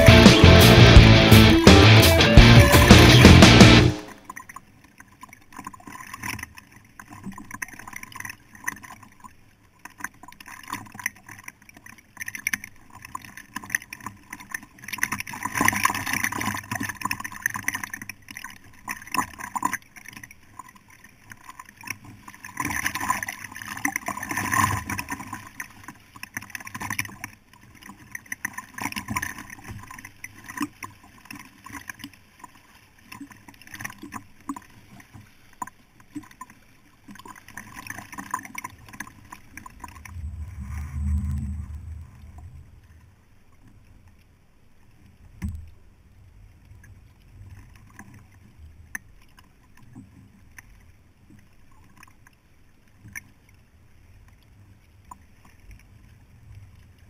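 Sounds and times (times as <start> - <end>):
paddle splashes: 3.9 - 45.6
river current rushing: 39.7 - 43.0.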